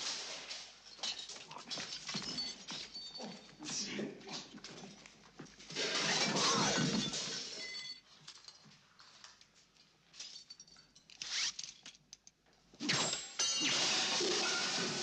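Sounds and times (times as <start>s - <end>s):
crockery and kitchenware crashing: 5.8s - 8.0s, 12.8s - 15.0s.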